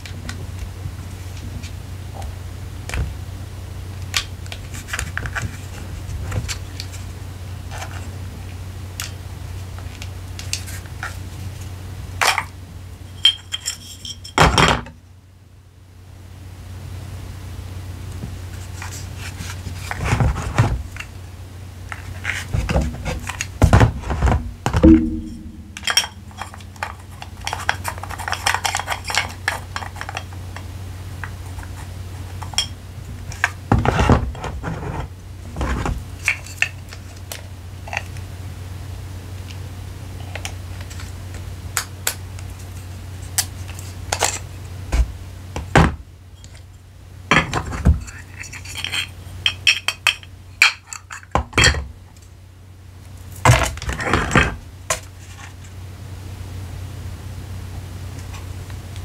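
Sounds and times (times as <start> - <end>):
steady low hum: 14.9 - 47.3
hard objects tapping and clinking: 24.8 - 30.3.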